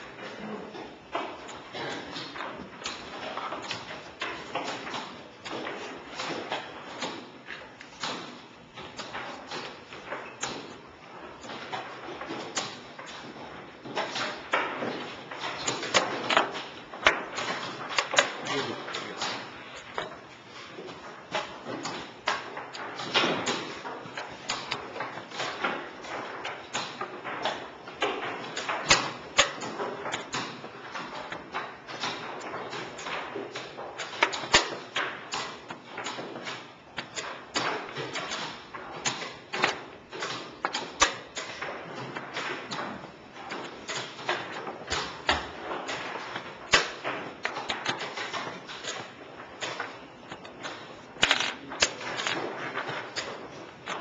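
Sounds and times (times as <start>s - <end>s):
chess pieces knocking on board: 1.2s - 54.0s
chess pieces clicking on board: 43.5s - 54.0s.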